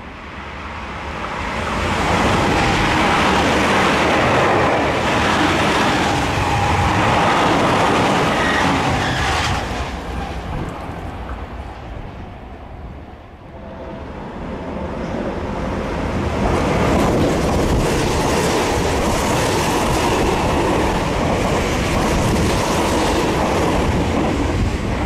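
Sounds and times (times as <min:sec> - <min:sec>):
train wheels rolling on rail: 0:00.3 - 0:25.0.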